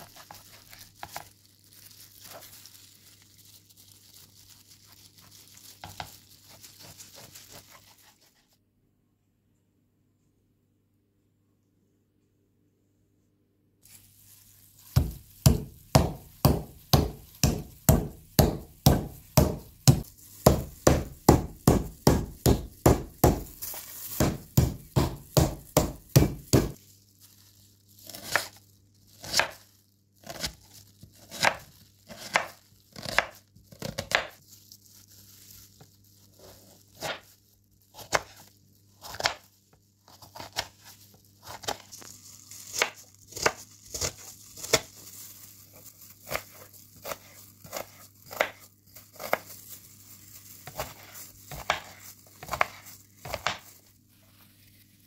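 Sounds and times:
knife slicing on plastic cutting board: 0:50.6 - 0:53.7.

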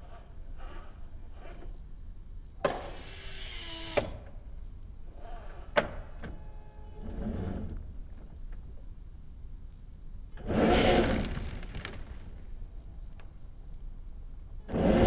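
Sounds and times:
electric motor whining: 0:05.2 - 0:08.0, 0:10.4 - 0:12.1.

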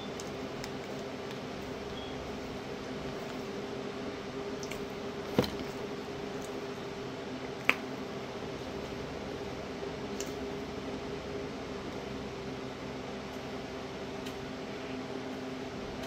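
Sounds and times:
chewing dry cornstarch: 0:00.0 - 0:03.6
steady low hum: 0:00.0 - 0:16.0.

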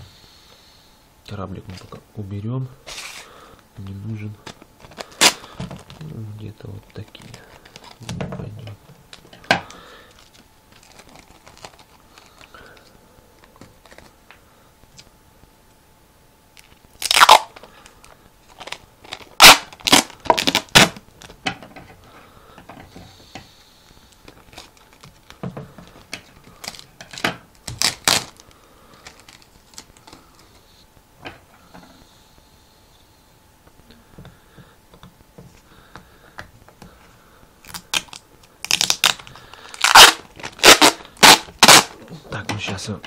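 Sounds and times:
packing tape ripping off roll: 0:02.9 - 0:03.3, 0:04.4 - 0:06.2, 0:06.8 - 0:08.2, 0:09.1 - 0:12.9, 0:16.6 - 0:21.4, 0:24.1 - 0:30.4, 0:37.6 - 0:42.0.

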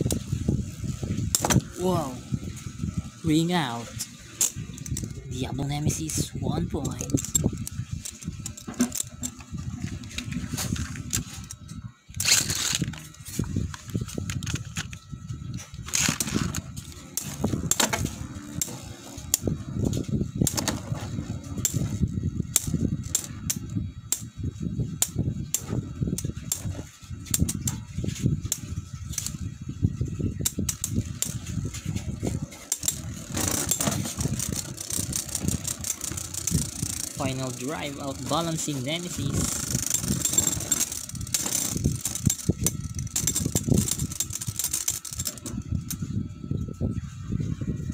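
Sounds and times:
spinning tops grinding whir: 0:00.0 - 0:47.9
metal tops clacking together: 0:32.6 - 0:45.5.

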